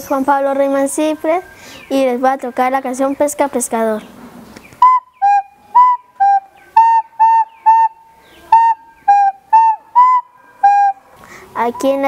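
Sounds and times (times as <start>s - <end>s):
recorder playing simple tune: 4.8s - 11.0s.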